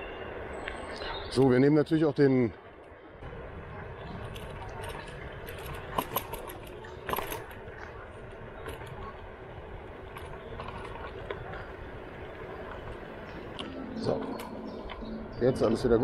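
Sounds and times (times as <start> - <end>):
electric scooter rolling: 0.0 - 16.0.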